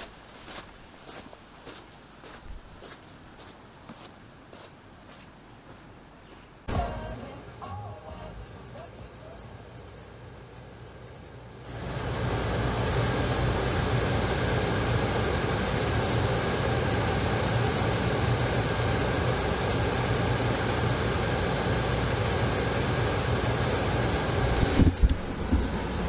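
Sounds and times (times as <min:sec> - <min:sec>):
car engine and road noise: 0:09.4 - 0:26.0.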